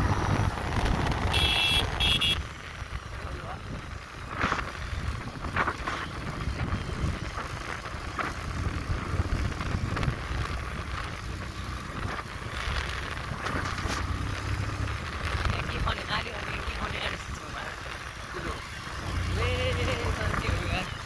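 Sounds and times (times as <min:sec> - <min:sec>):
wind buffeting microphone: 0:00.0 - 0:02.4, 0:03.4 - 0:12.4
motorcycle engine rumble: 0:00.0 - 0:21.0.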